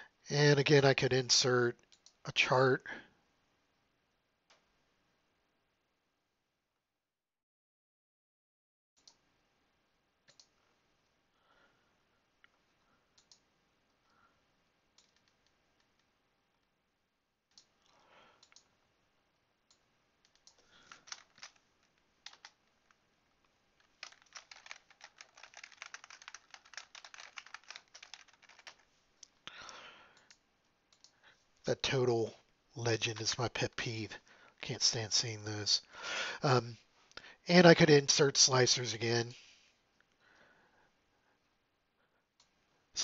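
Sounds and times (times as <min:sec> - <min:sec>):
computer mouse clicks: 0:10.3 - 0:10.6, 0:13.2 - 0:13.5, 0:15.0 - 0:16.1, 0:17.5 - 0:18.7, 0:19.7 - 0:21.6, 0:30.2 - 0:31.2
keyboard typing: 0:15.0 - 0:16.1, 0:20.2 - 0:22.7, 0:23.8 - 0:28.9.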